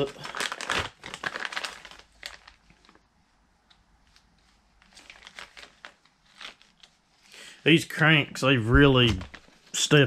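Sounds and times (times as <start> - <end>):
plastic bag crinkling: 0.0 - 3.2, 4.0 - 7.2, 8.9 - 10.0.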